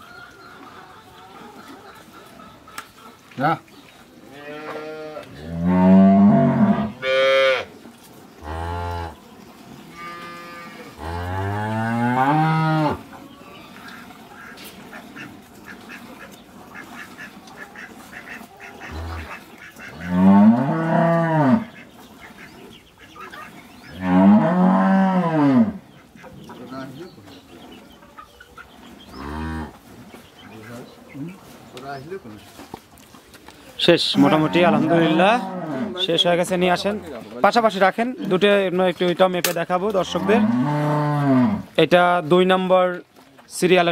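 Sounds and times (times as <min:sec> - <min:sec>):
cows mooing: 0:04.3 - 0:07.8, 0:08.4 - 0:21.9, 0:23.3 - 0:25.9, 0:29.0 - 0:29.9, 0:34.1 - 0:37.4, 0:39.9 - 0:41.8.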